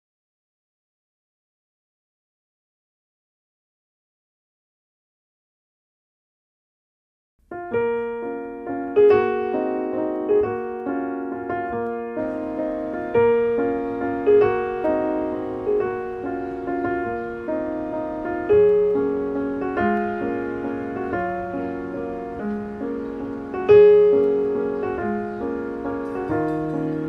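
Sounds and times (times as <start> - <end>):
slow gentle piano piece: 7.4 - 27.0.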